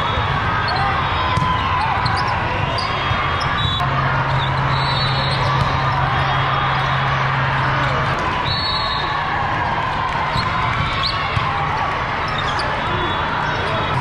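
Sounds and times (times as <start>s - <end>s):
many voices echoing: 0.0s - 14.0s
sneakers squeaking on court: 2.0s - 4.6s
volleyball being struck: 4.4s - 6.4s.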